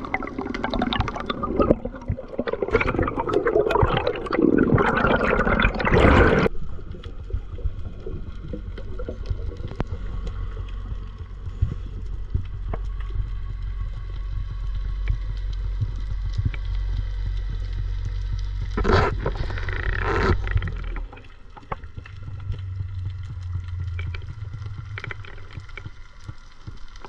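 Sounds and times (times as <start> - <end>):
rush of water bubbles: 0.0 - 6.8
underwater low rumble: 0.0 - 27.0
faint clicks: 6.8 - 27.0.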